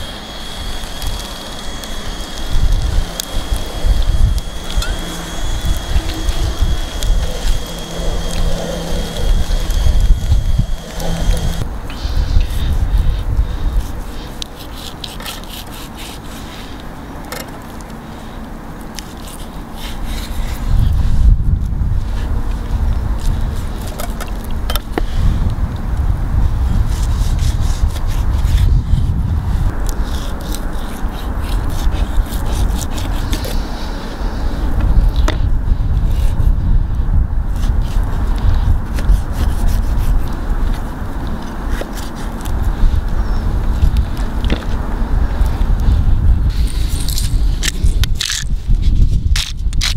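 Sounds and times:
low rumble: 0.0s - 14.4s, 31.2s - 49.4s
knife scraping along bone: 0.0s - 16.8s, 18.9s - 21.0s, 29.8s - 33.8s, 37.6s - 42.6s, 46.5s - 48.6s.

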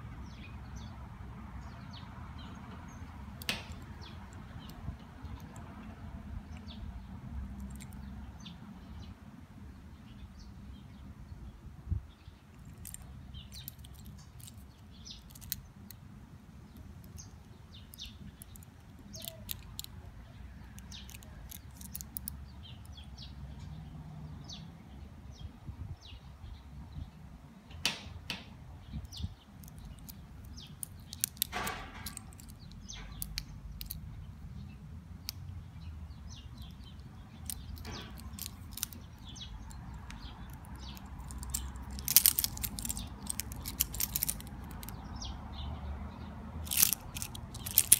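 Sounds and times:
metal watch bracelet clinking: 12.6s - 15.7s, 17.1s - 19.9s, 20.8s - 22.3s, 29.6s - 34.0s, 36.3s - 45.0s, 46.6s - 47.9s.

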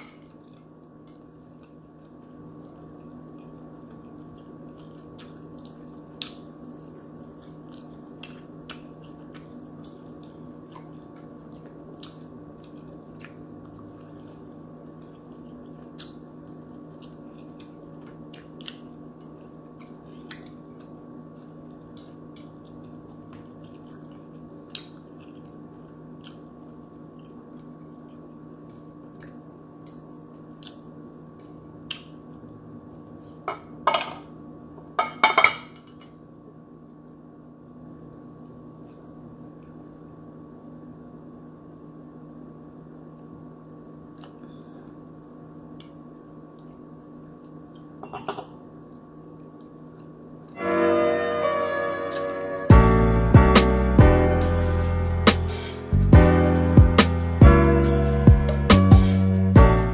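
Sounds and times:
steady low hum: 0.0s - 59.9s
soft chewing: 0.3s - 33.4s, 44.1s - 48.0s.

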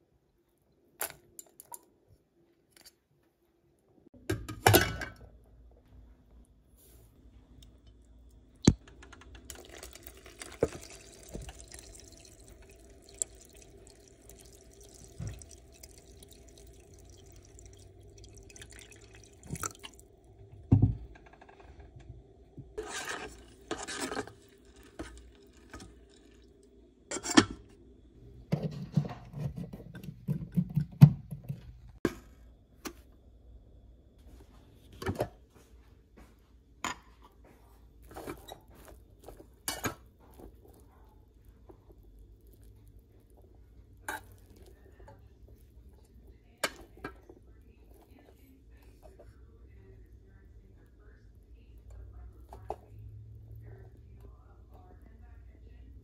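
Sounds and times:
water dripping into a pot: 7.6s - 20.7s, 23.7s - 26.8s
metal spoon scraping metal pot: 22.8s - 25.9s.

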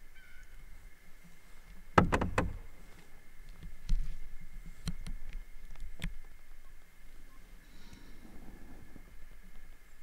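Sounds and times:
sharp hollow knocks: 1.9s - 2.8s.

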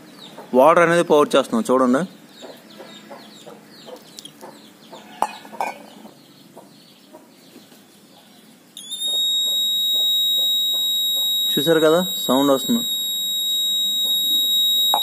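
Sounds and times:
high-pitched electronic buzzer beep: 8.8s - 15.0s
sharp clicks: 8.8s - 15.0s
short repeated calls: 8.8s - 15.0s.

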